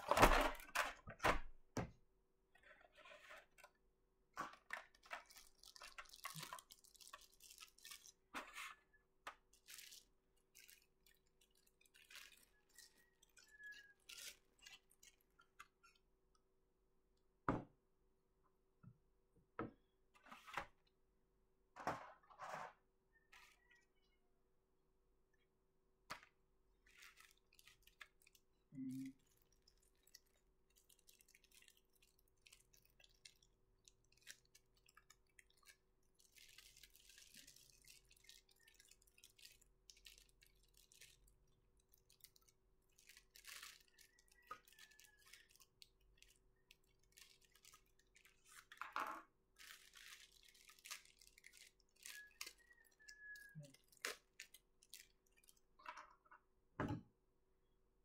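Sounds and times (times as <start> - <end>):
plastic bags crinkling: 4.6 - 8.3, 9.4 - 15.4, 29.2 - 48.9, 49.6 - 55.7.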